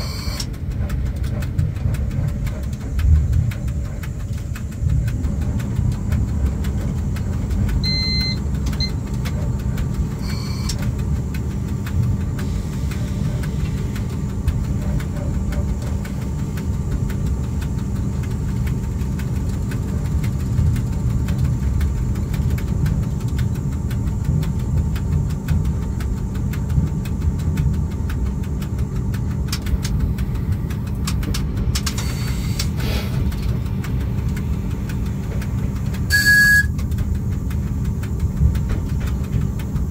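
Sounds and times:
high beep: 0:00.0 - 0:00.4, 0:07.8 - 0:09.0, 0:10.2 - 0:10.7, 0:36.1 - 0:36.7
fine rapid clicking: 0:00.0 - 0:39.9
locomotive rumbling on rails: 0:00.0 - 0:39.9.

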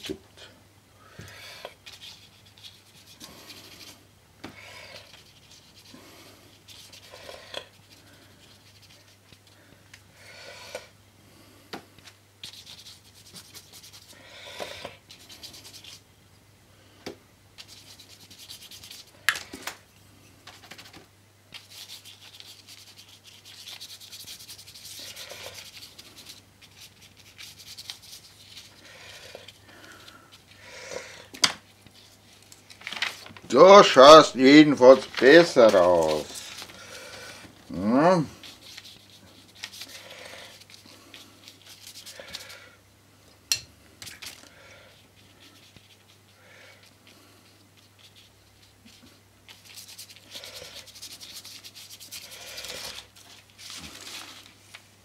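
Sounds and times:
low electrical hum: 0:00.0 - 0:55.0
paintbrush scrubbing paper: 0:01.8 - 0:04.0, 0:04.9 - 0:09.6, 0:12.4 - 0:14.3, 0:14.9 - 0:16.0, 0:17.6 - 0:19.2, 0:21.5 - 0:30.6, 0:31.6 - 0:42.6, 0:45.1 - 0:54.5.

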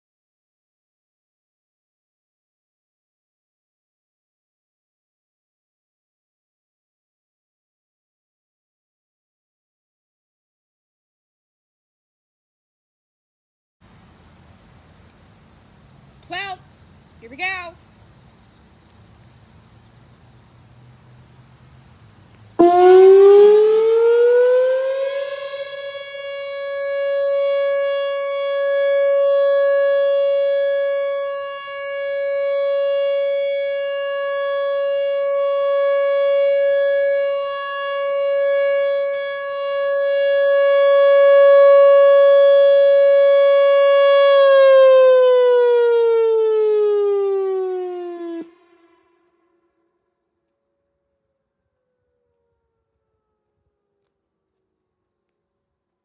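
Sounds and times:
rotating warning siren: 0:22.5 - 0:54.2.

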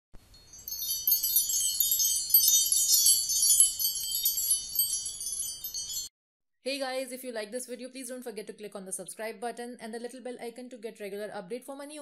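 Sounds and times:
shimmering bell chimes: 0:00.4 - 0:06.1.

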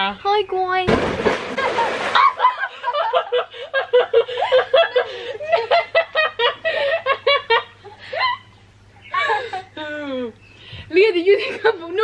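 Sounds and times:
girl laughing: 0:01.7 - 0:10.3.

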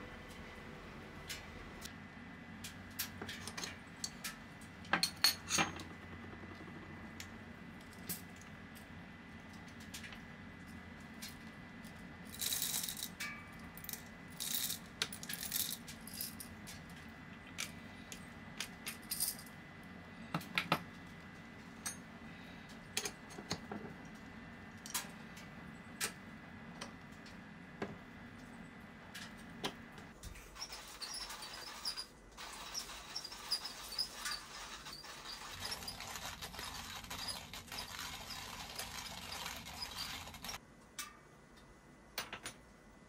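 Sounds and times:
coffee beans rattling: 0:12.2 - 0:13.2, 0:13.8 - 0:16.6, 0:30.5 - 0:40.6.

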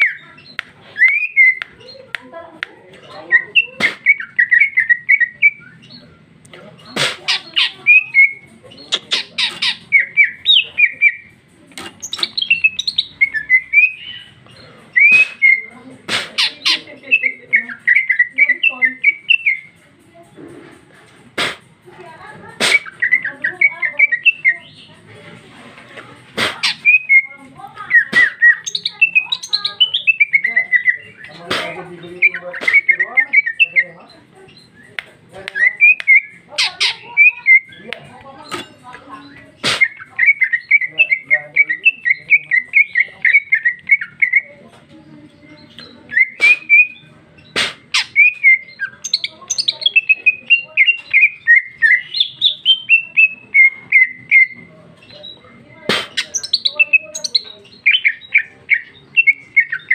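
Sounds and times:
bird singing fast chattering notes: 0:00.0 - 0:02.2, 0:03.0 - 0:25.1, 0:26.2 - 0:59.9
loud sharp bird clicks: 0:00.0 - 0:02.8, 0:06.4 - 0:19.8, 0:21.2 - 0:21.7, 0:22.6 - 0:24.5, 0:27.9 - 0:33.8, 0:34.5 - 0:44.4, 0:45.6 - 0:54.6, 0:55.9 - 0:59.9.

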